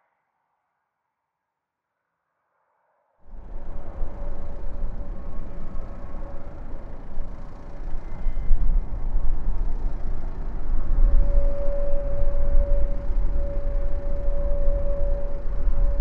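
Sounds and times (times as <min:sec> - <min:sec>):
jet airliner engines: 0:03.3 - 0:16.0.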